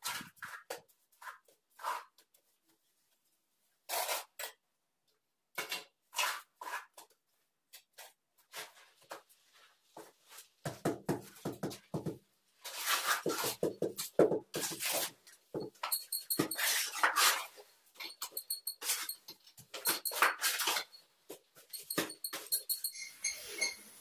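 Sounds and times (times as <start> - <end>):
tile knocking and scraping on wall: 0.0 - 2.9, 5.5 - 23.8
trowel scraping and slapping mortar: 3.9 - 4.5, 5.6 - 7.2, 12.6 - 21.0.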